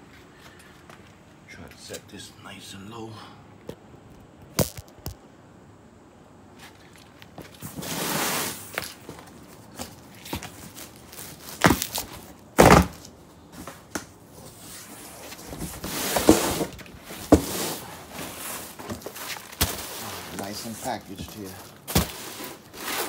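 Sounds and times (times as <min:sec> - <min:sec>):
cardboard scraping and rustling: 0:07.4 - 0:13.8, 0:14.4 - 0:23.0
hard thuds on cardboard box: 0:12.6 - 0:13.0, 0:21.9 - 0:22.2.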